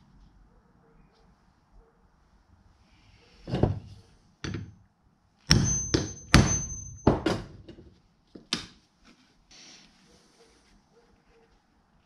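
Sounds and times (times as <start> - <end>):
high metallic ring: 5.5 - 7.2
hammer striking hole punch: 5.5 - 7.6.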